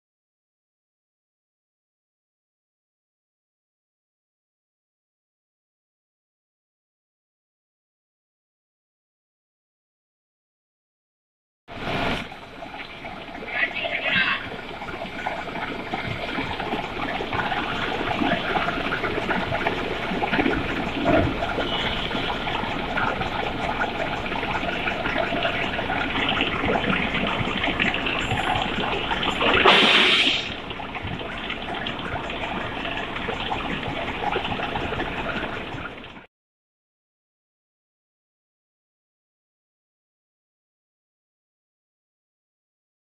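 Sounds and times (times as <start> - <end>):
loud hissing burst: 29.6 - 30.6.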